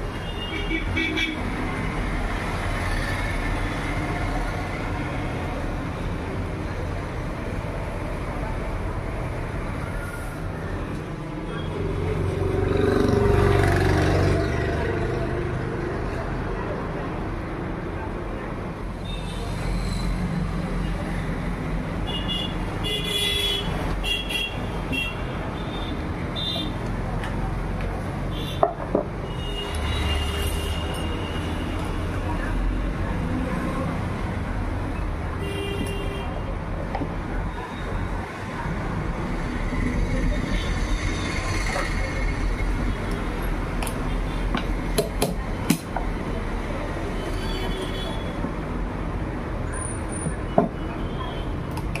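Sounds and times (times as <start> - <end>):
road traffic rumble: 0.0 - 52.0.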